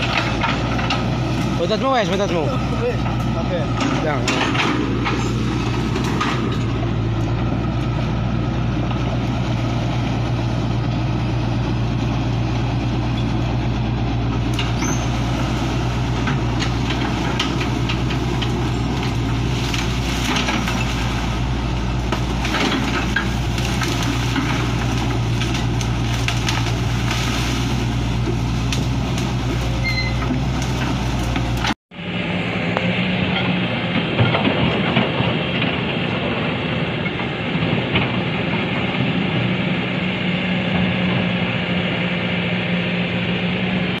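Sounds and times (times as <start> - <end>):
excavator diesel engine running: 0.0 - 44.0
cracks and knocks of branches: 14.5 - 31.8.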